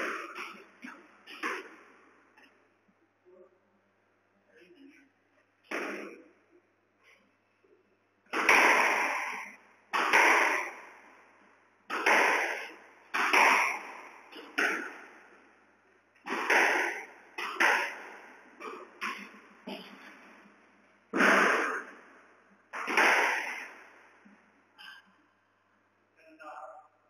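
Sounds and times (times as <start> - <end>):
squash ball hitting racket and walls: 0.0 - 2.6, 5.7 - 6.3, 8.2 - 25.0.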